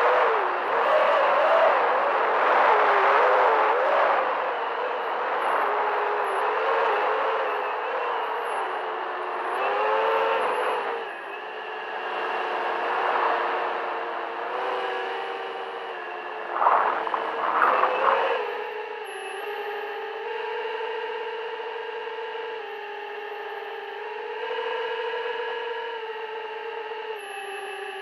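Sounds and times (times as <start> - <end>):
drone motors whining: 14.7 - 20.0.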